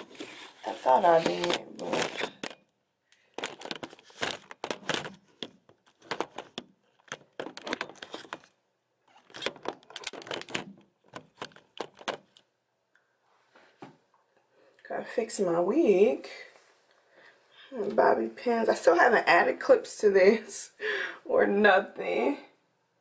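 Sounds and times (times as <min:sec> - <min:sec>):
phone handling noise: 0:03.4 - 0:12.4.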